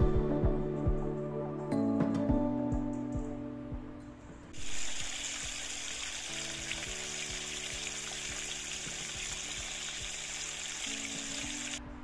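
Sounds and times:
soft background music: 0.0 - 12.0
brook water rushing: 4.6 - 11.8.

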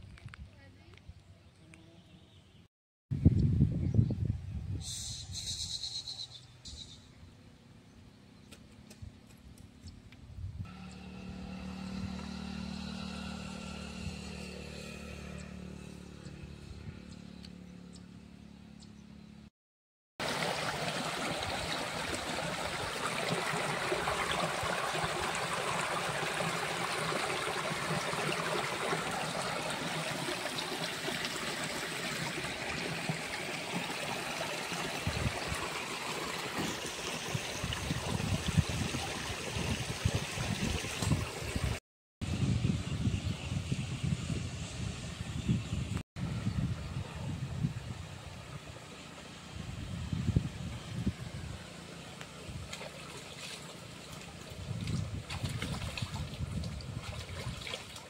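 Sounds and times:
stream flowing over stones: 20.2 - 41.8, 52.7 - 58.0.

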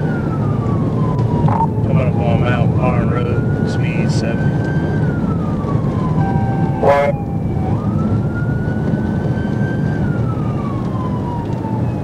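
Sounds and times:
engine and road noise: 0.0 - 12.0
police siren wailing: 0.0 - 12.0
loud siren blip: 1.0 - 1.8, 5.4 - 8.9.

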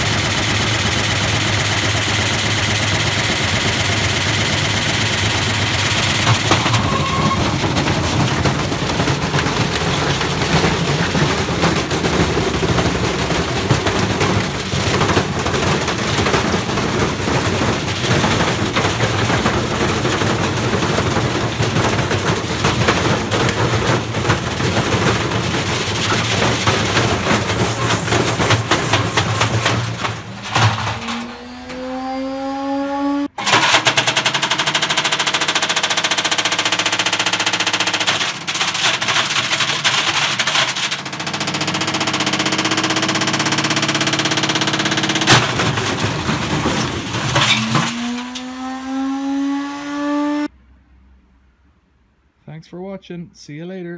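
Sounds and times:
brick hammering in washing machine: 0.0 - 31.3, 33.4 - 49.4
washing machine motor whine: 26.0 - 33.4, 41.8 - 50.5.

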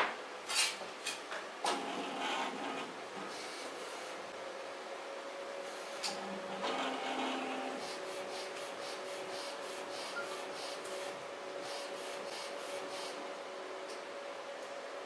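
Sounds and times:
printer carriage moving: 1.6 - 3.7, 6.0 - 7.9.

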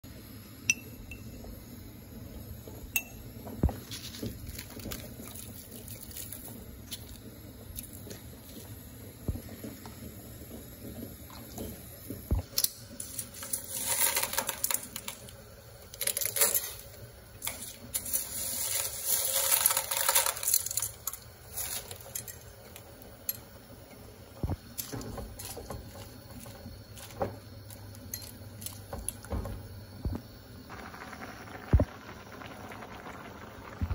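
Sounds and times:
utensils clinking against pot: 16.0 - 23.5, 24.8 - 29.2.

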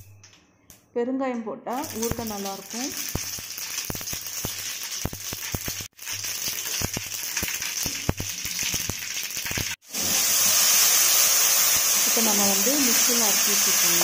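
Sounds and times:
seeds popping in oil: 1.7 - 9.9
oil sizzling: 1.7 - 14.0.

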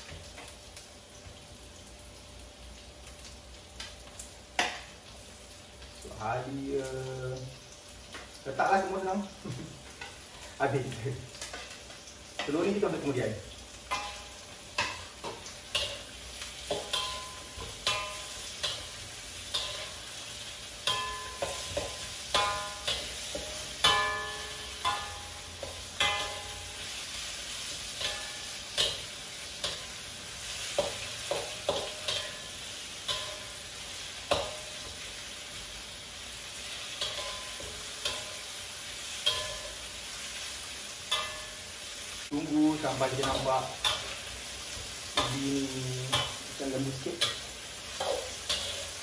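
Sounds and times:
food sizzling: 0.0 - 49.0
metal spatula scraping wok: 13.9 - 35.0, 42.8 - 49.0.

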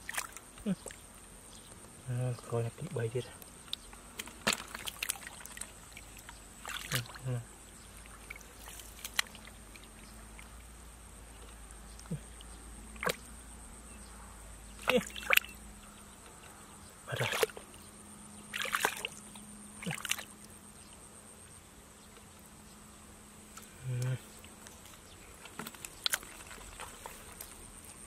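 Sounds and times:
hands splashing in muddy puddle: 4.2 - 7.3, 13.0 - 13.2, 14.8 - 15.6, 17.1 - 17.6, 18.5 - 19.2, 19.8 - 20.3.

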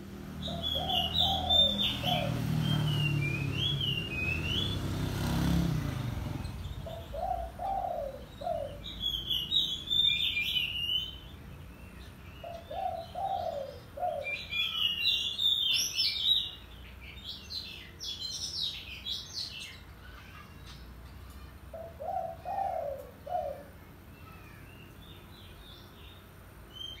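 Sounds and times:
dove cooing: 0.5 - 2.9, 6.8 - 8.8, 12.4 - 14.6, 21.7 - 23.8
bird singing whistled phrases: 0.6 - 4.8.

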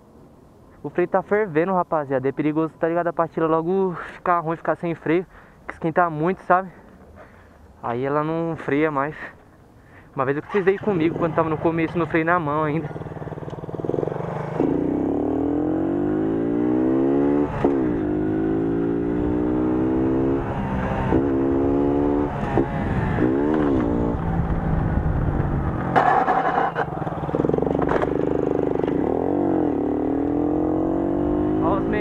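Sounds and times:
moped engine revving: 10.9 - 32.0
metal scraping on asphalt: 25.9 - 29.0.

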